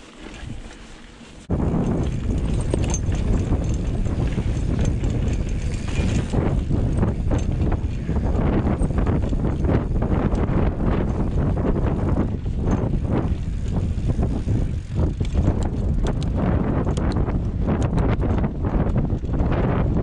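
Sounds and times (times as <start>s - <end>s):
bike tyres rumbling: 0.0s - 20.0s
wind on microphone: 1.4s - 20.0s
chain and frame rattling: 1.7s - 17.2s.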